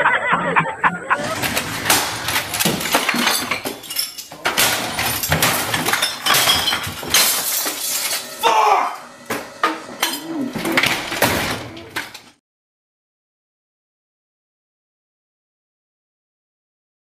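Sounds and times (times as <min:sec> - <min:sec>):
glass and bottles clinking: 0:01.2 - 0:08.4, 0:09.3 - 0:12.2
man yelling: 0:08.4 - 0:09.1.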